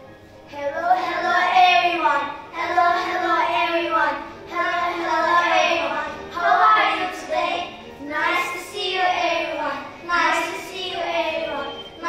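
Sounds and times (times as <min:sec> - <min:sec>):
child singing: 0:00.5 - 0:11.8.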